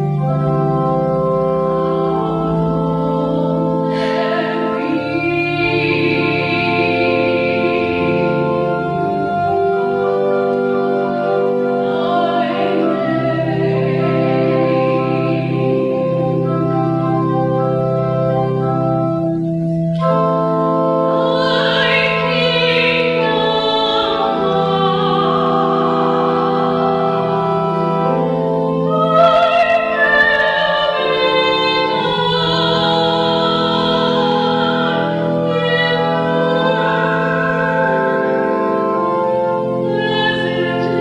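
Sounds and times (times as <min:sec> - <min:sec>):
organ chords: 0:00.0 - 0:41.0
woman singing with vibrato: 0:01.8 - 0:10.0, 0:10.8 - 0:17.1, 0:21.2 - 0:41.0.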